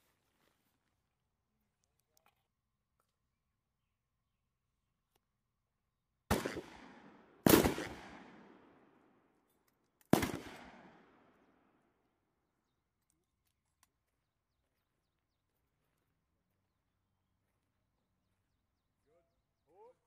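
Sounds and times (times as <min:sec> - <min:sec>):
gunfire echo: 0:06.3 - 0:09.3, 0:10.1 - 0:11.8.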